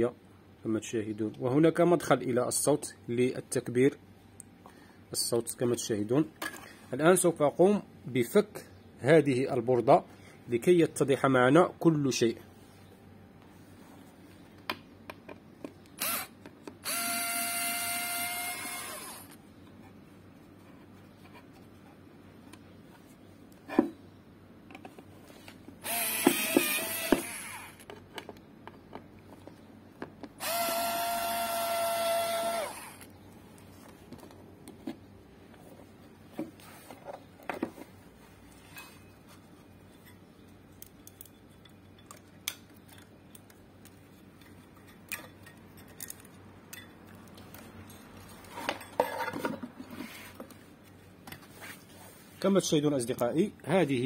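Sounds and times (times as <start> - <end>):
electric screwdriver whining: 16.0 - 19.4, 25.8 - 27.8, 30.4 - 33.1.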